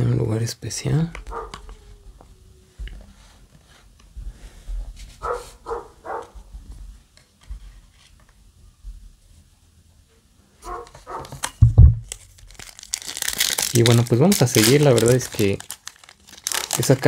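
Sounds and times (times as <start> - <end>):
animal yelping: 10.6 - 11.3
knocks on wooden tabletop: 11.6 - 12.0.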